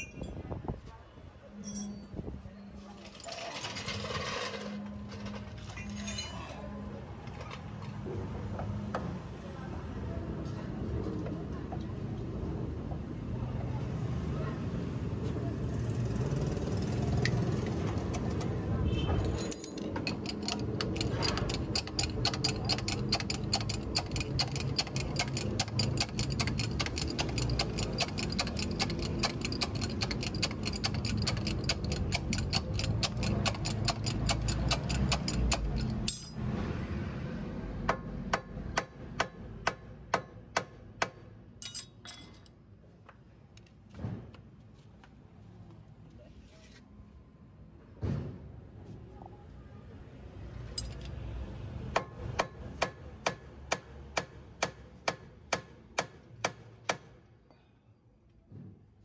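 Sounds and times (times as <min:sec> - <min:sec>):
rapid metallic clicking: 0:20.0 - 0:36.0.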